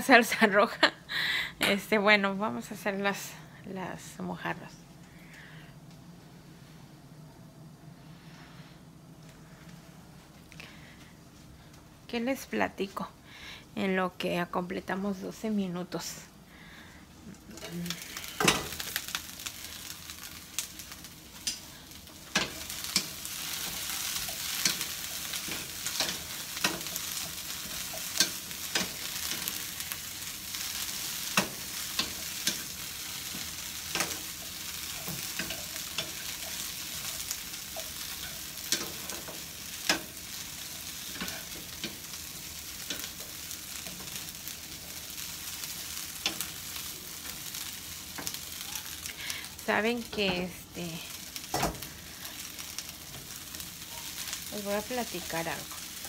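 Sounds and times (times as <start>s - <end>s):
fish sizzling in oil: 17.6s - 56.0s.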